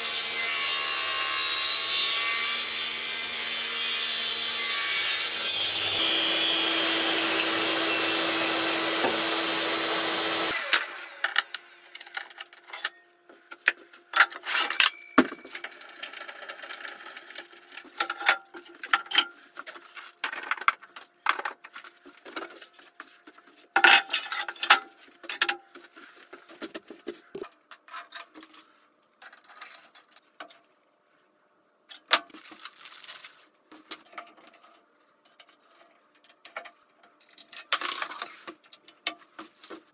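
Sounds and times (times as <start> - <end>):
table saw cutting aluminium: 0.0 - 11.6.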